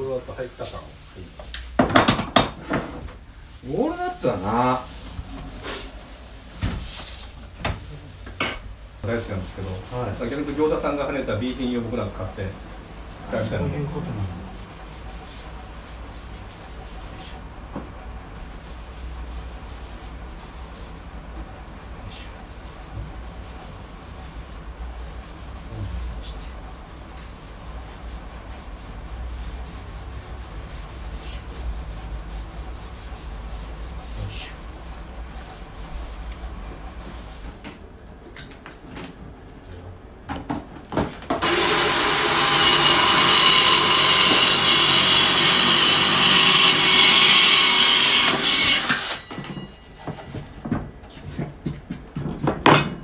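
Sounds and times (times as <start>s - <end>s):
rag rubbing wood: 2.6s - 7.0s
circular saw cutting board: 41.4s - 49.5s.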